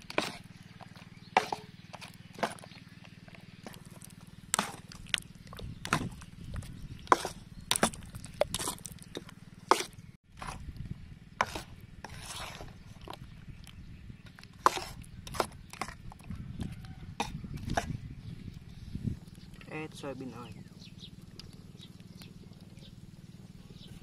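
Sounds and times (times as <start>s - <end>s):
metal spoon scraping bowl: 0.0s - 0.4s, 7.0s - 10.6s, 11.4s - 13.2s, 14.4s - 18.0s.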